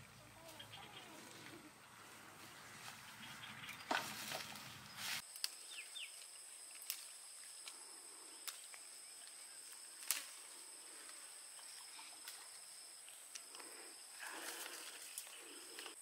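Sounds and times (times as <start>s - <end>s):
footsteps through grass: 0.4s - 13.4s
high insect drone: 5.2s - 16.0s
leaves snapping off branch: 5.3s - 7.8s, 8.4s - 10.4s.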